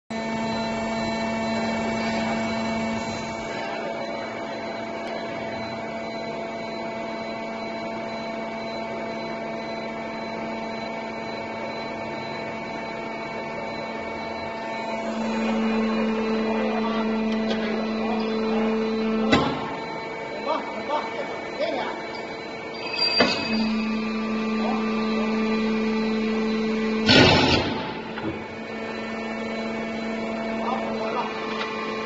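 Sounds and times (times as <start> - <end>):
higher machine tone: 0.1 - 32.0
machine motor hum: 0.1 - 32.0
sharp machine clunk: 27.0 - 28.4.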